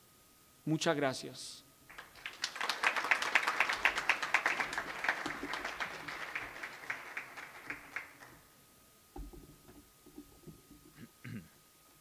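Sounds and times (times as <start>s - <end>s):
small audience applauding: 1.9s - 8.5s.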